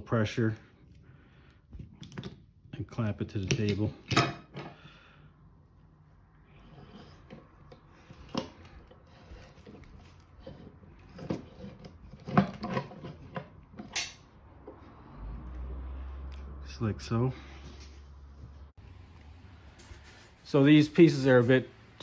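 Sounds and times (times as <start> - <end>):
clamp handle rubbing and scraping: 6.5 - 14.8.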